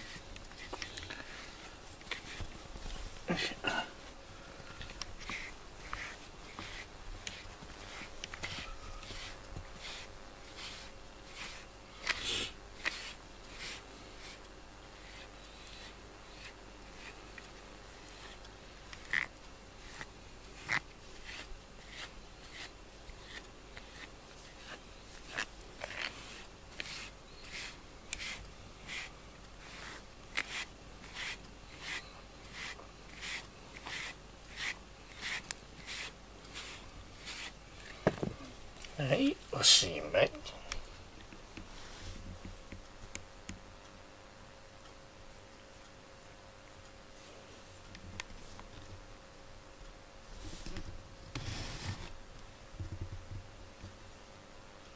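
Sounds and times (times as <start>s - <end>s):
brush swishing through cat fur: 0.0s - 39.2s, 41.6s - 42.4s, 50.3s - 52.2s.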